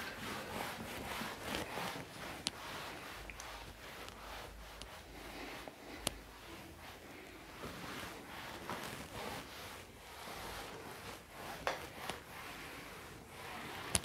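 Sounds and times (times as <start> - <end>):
shuffling and clothing rustle: 0.0 - 14.0.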